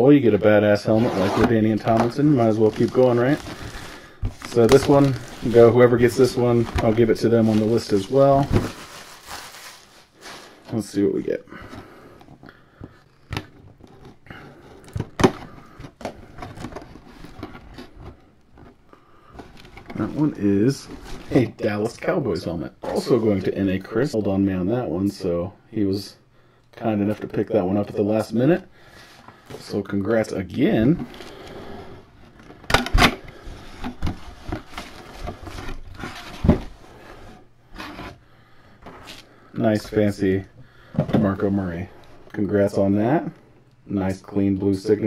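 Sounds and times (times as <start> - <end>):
cardboard rustling: 0.8 - 12.5, 14.9 - 22.0, 32.3 - 38.2.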